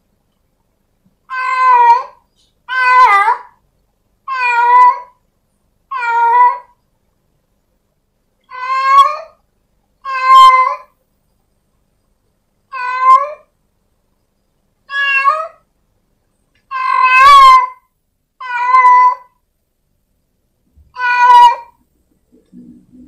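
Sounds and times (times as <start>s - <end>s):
cat meowing loudly: 1.3s - 3.6s, 4.3s - 5.2s, 5.9s - 6.8s, 8.5s - 9.4s, 10.0s - 10.9s, 12.7s - 13.5s, 14.9s - 15.6s, 16.7s - 19.4s, 20.9s - 21.8s.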